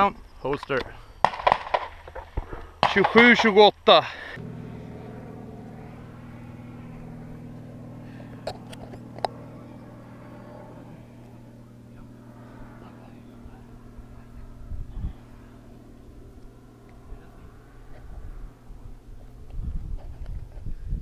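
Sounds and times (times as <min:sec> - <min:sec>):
distant pistol shots: 0:01.2 - 0:01.9
low mechanical hum: 0:02.0 - 0:21.0.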